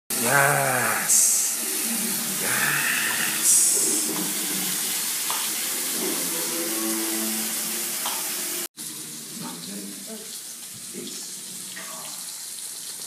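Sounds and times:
loud hissing noise: 0:00.1 - 0:04.8
faint voices: 0:02.4 - 0:04.2.

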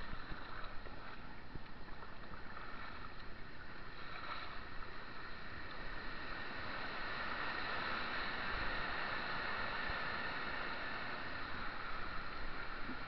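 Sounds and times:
paddle strokes splashing: 0:00.0 - 0:05.9
rushing white water: 0:04.8 - 0:13.0.

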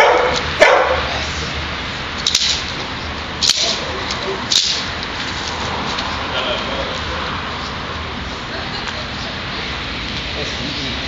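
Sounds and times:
stick slapping cracks: 0:02.2 - 0:06.1.

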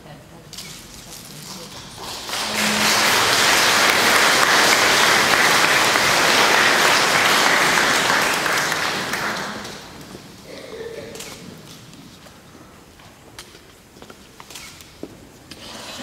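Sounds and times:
congregation applauding: 0:01.8 - 0:10.3.

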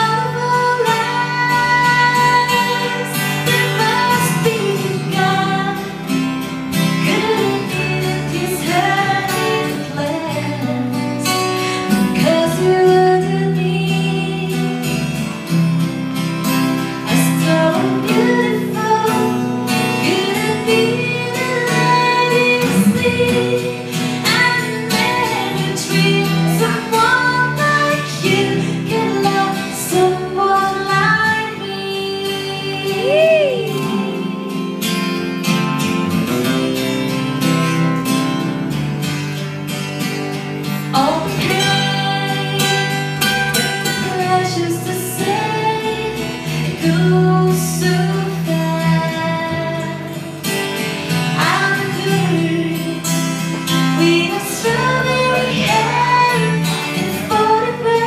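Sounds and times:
woman singing: 0:00.0 - 0:15.2, 0:17.0 - 0:35.2, 0:40.7 - 0:58.0
electric guitar: 0:00.0 - 0:58.0
strummed acoustic guitars: 0:00.0 - 0:58.0.

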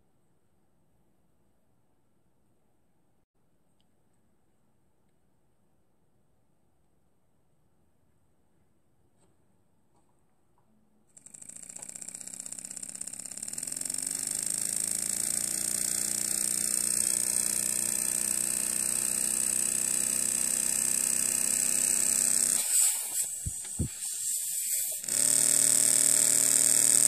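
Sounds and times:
small steam engine running: 0:11.2 - 0:27.0
hiss of exhausting air: 0:14.5 - 0:27.0.

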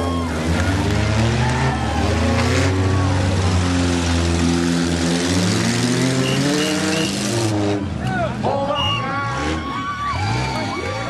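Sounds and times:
car engine revving: 0:00.0 - 0:08.3.

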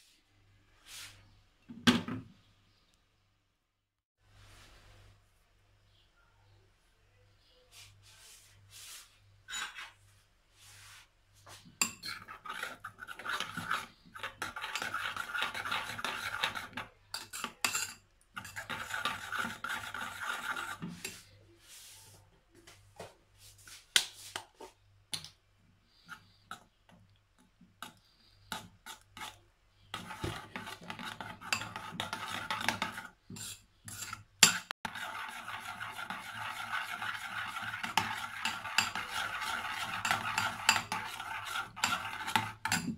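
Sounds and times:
spoon stirring grainy mixture: 0:10.6 - 0:22.2, 0:23.6 - 0:42.9.

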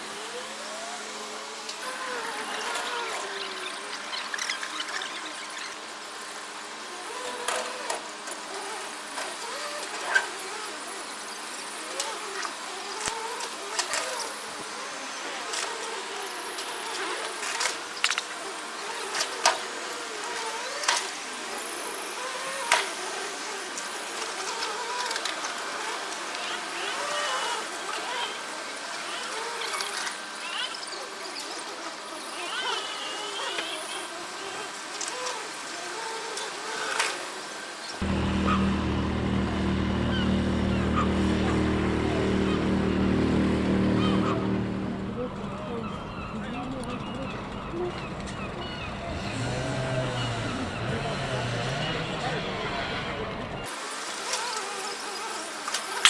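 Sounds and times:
forklift engine running: 0:38.0 - 0:53.7.

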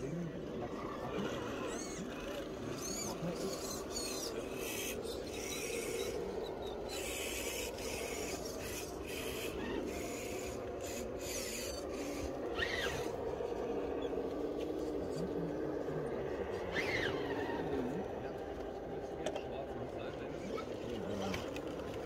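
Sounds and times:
low motor whine: 0:00.0 - 0:22.0
toy car motor grinding hiss: 0:01.6 - 0:06.2, 0:06.9 - 0:13.2, 0:16.7 - 0:17.2.

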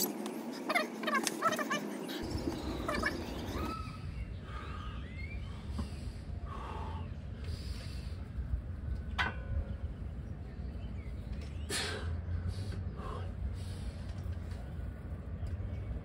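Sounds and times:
man breathing forcefully: 0:04.4 - 0:08.3.

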